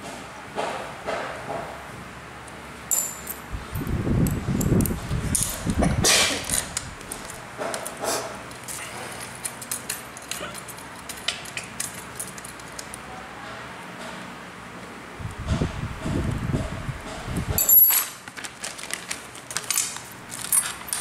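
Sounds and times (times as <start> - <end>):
hex key clicking on metal: 9.4 - 13.0.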